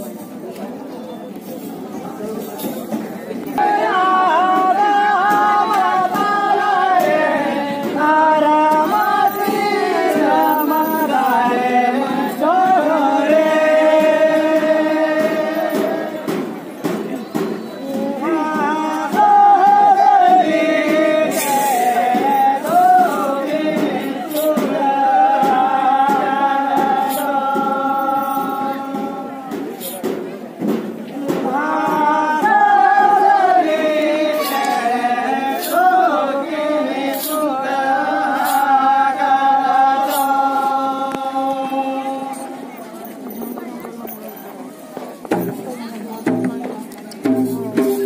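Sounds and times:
hand drum strokes: 0:01.5 - 0:41.6, 0:44.5 - 0:48.0
group singing: 0:03.5 - 0:29.7, 0:31.1 - 0:42.8.

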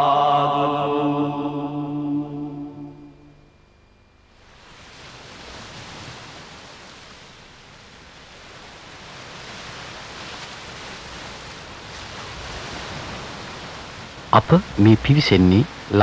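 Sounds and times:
waves washing in: 0:04.4 - 0:16.0.

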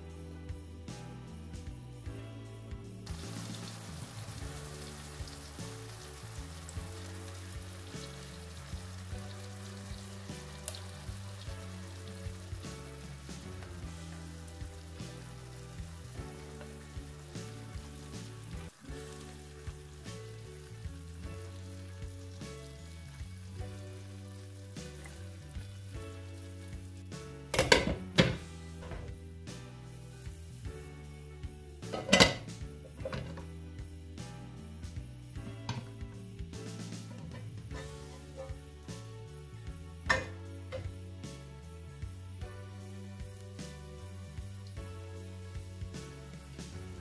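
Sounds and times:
soft background music: 0:00.0 - 0:47.0
apple slices sizzling in a frying pan: 0:03.1 - 0:27.8, 0:29.8 - 0:31.0, 0:42.0 - 0:47.0.

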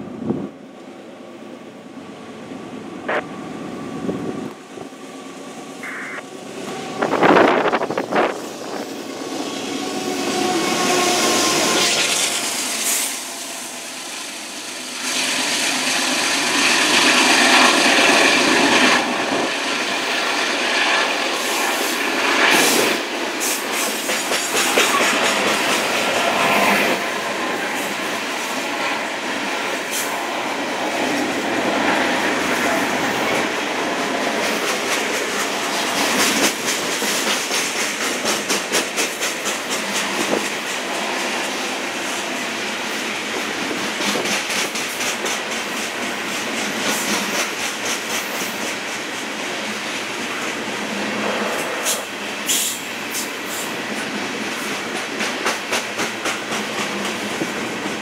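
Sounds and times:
diesel locomotives passing: 0:00.0 - 0:58.0
train wheels clacking on rails: 0:15.0 - 0:58.0.

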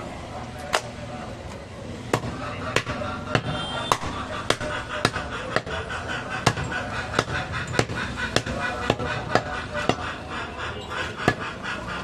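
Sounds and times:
cleaver chopping bone on wood: 0:02.1 - 0:05.7.

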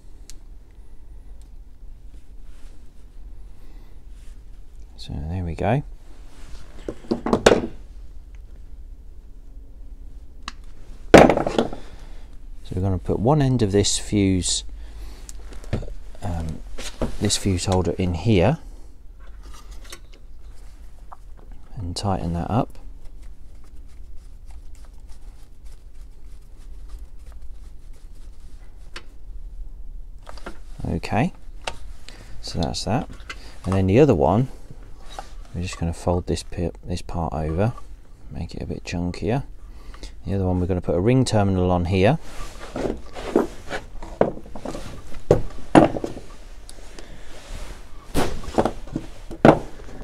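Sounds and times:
steady low hum: 0:00.0 - 0:50.0
knocks from handling tools and parts: 0:06.8 - 0:07.8, 0:11.2 - 0:11.8, 0:42.8 - 0:46.3, 0:48.5 - 0:50.0.

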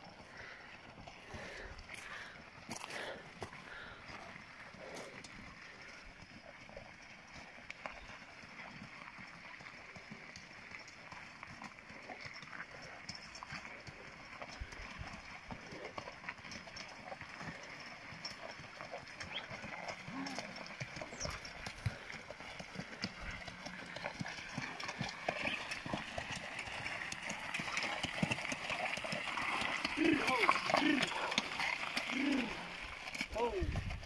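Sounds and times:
hooves clopping on gravel: 0:00.0 - 0:34.0.

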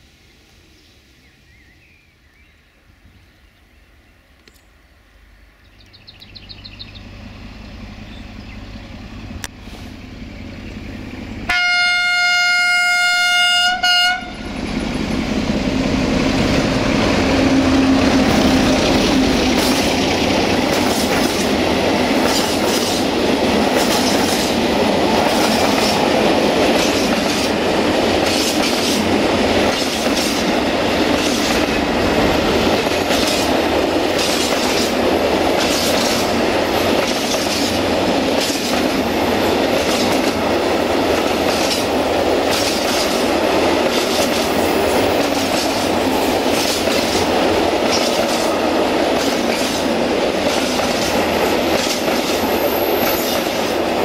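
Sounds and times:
diesel locomotive engine: 0:00.0 - 0:54.0
locomotive horn blast: 0:11.5 - 0:14.6.

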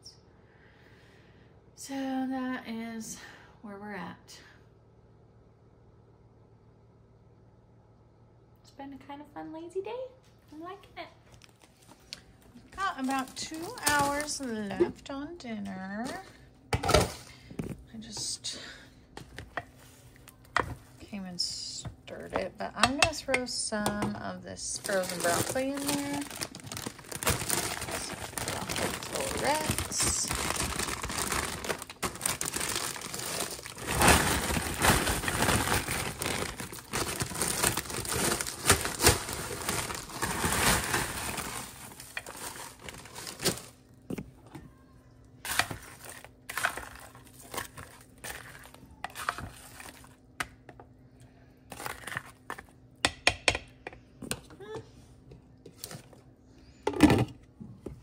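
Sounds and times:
plastic bag crinkling: 0:11.3 - 0:14.9, 0:24.6 - 0:44.0.

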